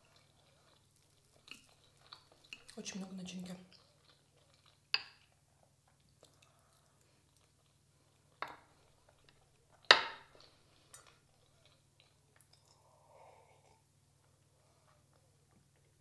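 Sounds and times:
person sipping tea: 10.4 - 13.9.

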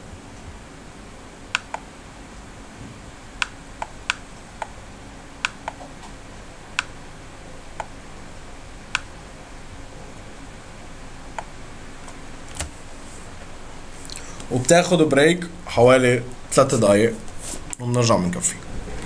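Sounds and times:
steady low hum: 0.0 - 19.0
computer mouse clicking: 1.5 - 1.8, 3.4 - 4.7, 5.4 - 5.9.

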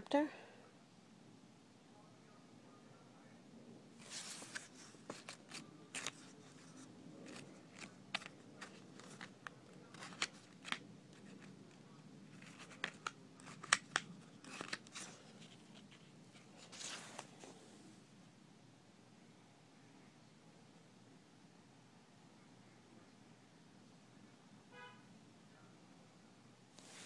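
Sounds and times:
paper pages rustling: 4.0 - 17.7, 26.8 - 27.0.

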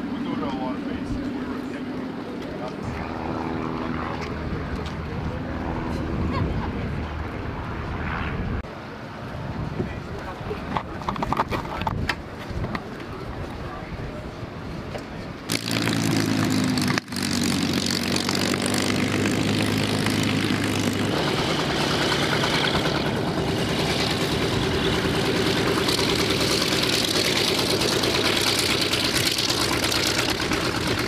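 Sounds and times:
radial aircraft engine running: 0.0 - 11.3, 12.2 - 31.0.

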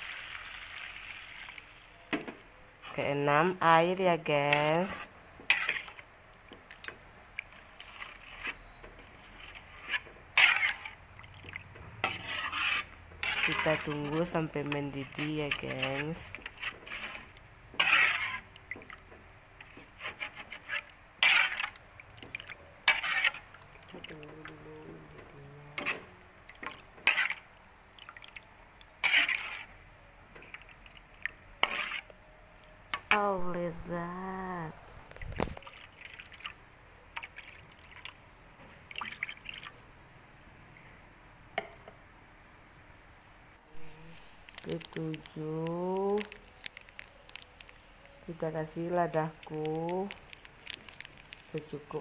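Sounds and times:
metal spatula scraping wok: 2.8 - 6.1, 7.5 - 27.5, 29.0 - 30.8, 31.6 - 32.2
broth simmering with bubbling pops: 5.7 - 12.2, 16.3 - 33.1, 35.0 - 40.5, 44.3 - 52.0.

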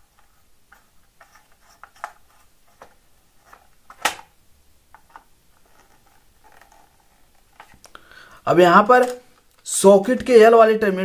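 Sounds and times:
wire clicking and rustling: 4.9 - 8.0.

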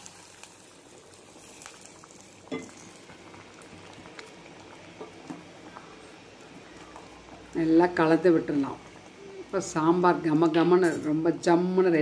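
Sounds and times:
stew boiling in a pot: 0.0 - 12.0.

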